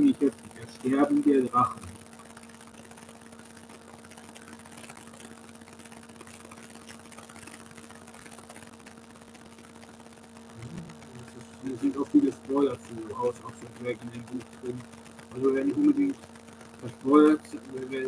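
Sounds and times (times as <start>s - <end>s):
even hiss: 0.0s - 2.1s, 10.6s - 18.0s
faint hum: 0.0s - 18.0s.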